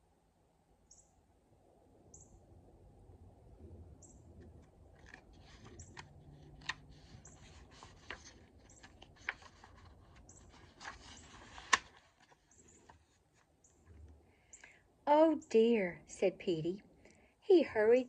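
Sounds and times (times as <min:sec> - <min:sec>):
faint high bird chirps: 0:00.8 - 0:01.2, 0:02.1 - 0:02.4, 0:04.0 - 0:04.3
paper page rustling and flipping: 0:04.4 - 0:14.1.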